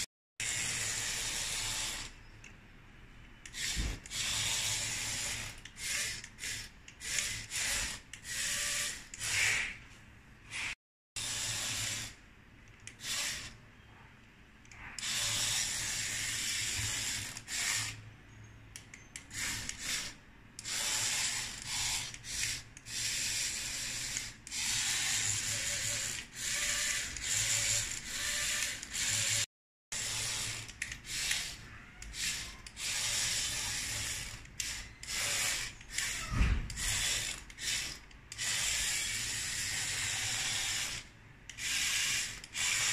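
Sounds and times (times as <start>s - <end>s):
toy motor running in short bursts: 0.0s - 2.2s, 3.4s - 9.8s, 10.5s - 12.2s, 12.9s - 13.6s, 14.8s - 18.0s, 19.1s - 42.9s.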